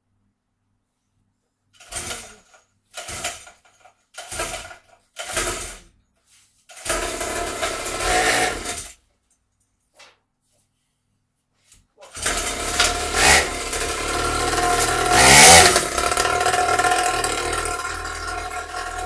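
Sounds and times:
motorbike engine starting and running: 1.8s - 5.9s, 6.7s - 9.0s, 12.1s - 19.0s.

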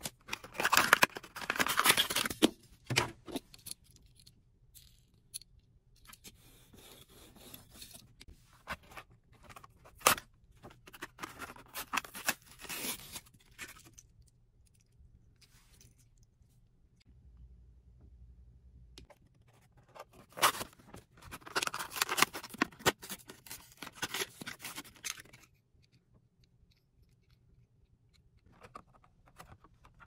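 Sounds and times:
packaging being opened by hand: 0.0s - 2.5s, 8.7s - 14.0s, 20.0s - 25.5s
packaging tearing: 21.3s - 25.3s.

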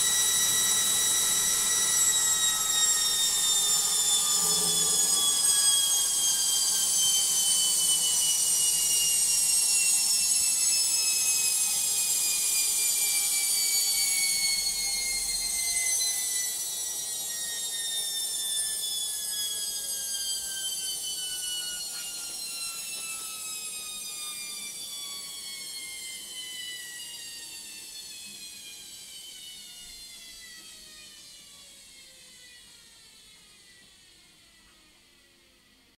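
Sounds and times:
washing machine motor whine: 0.0s - 35.9s.

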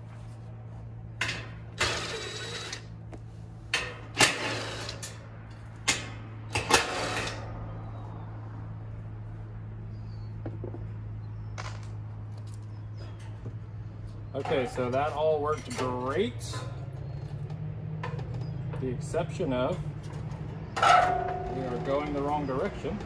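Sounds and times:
cordless drill whirring: 1.8s - 2.9s
air conditioner unit humming: 12.8s - 17.0s.

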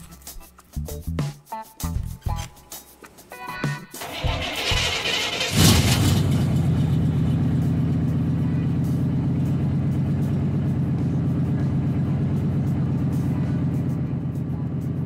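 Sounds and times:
engine starter cranking: 4.0s - 7.8s
pickup engine idling: 4.0s - 15.0s.

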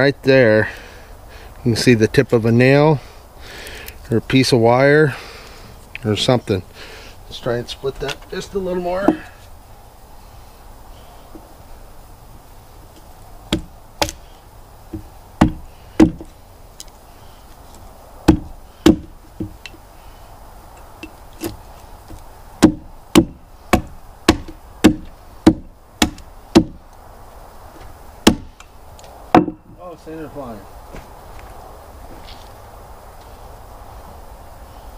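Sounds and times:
axe chopping wood: 13.5s - 14.2s, 14.9s - 16.3s, 18.2s - 19.6s, 21.0s - 26.8s, 28.2s - 28.6s, 29.3s - 29.8s.

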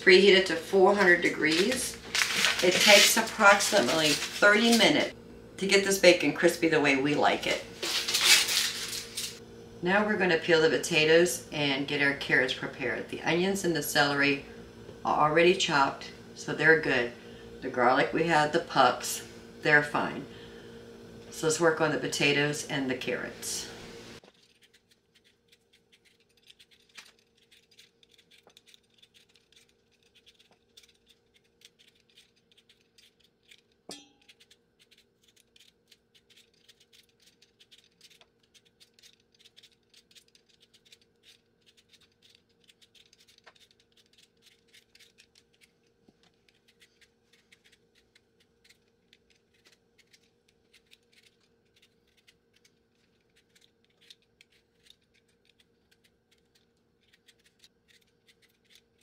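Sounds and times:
vegetable peeler scraping potato: 0.0s - 5.2s, 21.3s - 59.0s.

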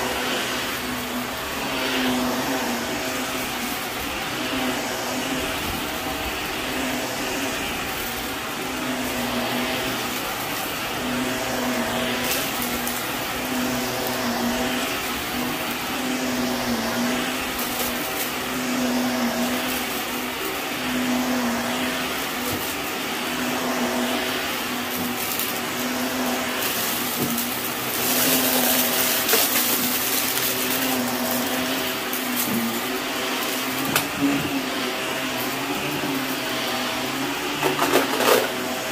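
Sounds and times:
vacuum cleaner on carpet: 0.0s - 38.9s.

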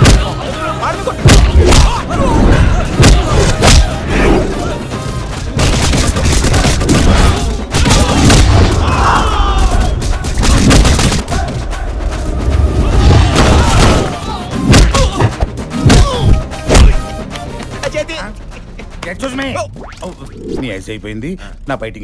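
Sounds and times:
dramatic background music: 0.0s - 22.0s
punch and impact hits: 1.2s - 2.0s, 3.0s - 3.9s, 5.6s - 9.0s, 9.8s - 11.5s, 14.7s - 17.0s.

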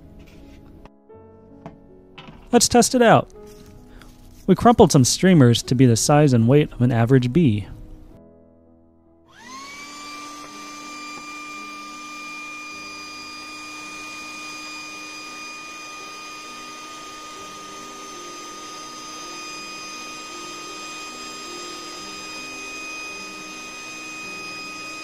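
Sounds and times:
electric air pump whining: 9.3s - 25.0s.

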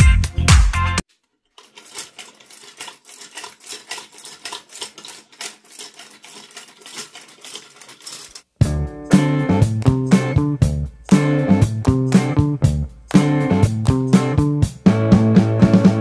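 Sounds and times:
dance music: 0.0s - 1.0s.

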